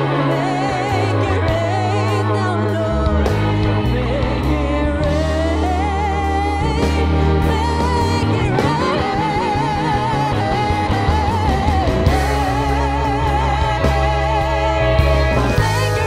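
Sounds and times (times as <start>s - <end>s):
live band playing: 0.0s - 16.0s
woman singing with vibrato: 0.0s - 16.0s.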